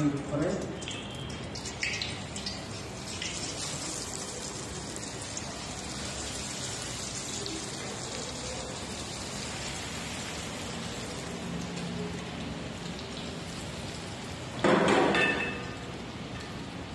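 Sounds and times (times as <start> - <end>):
hot oil sizzling and bubbling: 0.0 - 16.9.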